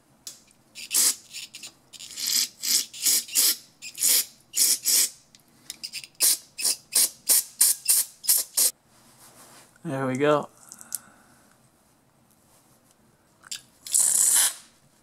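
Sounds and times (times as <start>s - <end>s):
aerosol spray hissing bursts: 7.0s - 8.7s.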